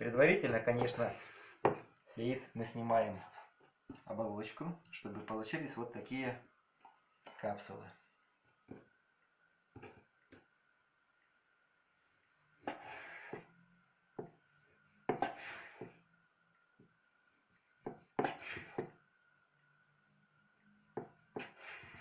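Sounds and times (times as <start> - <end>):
knife slicing meat: 21.0 - 22.0.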